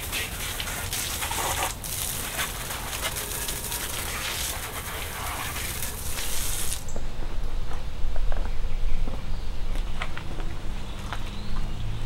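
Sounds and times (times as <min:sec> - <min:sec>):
garden hose spraying water: 0:00.0 - 0:07.0.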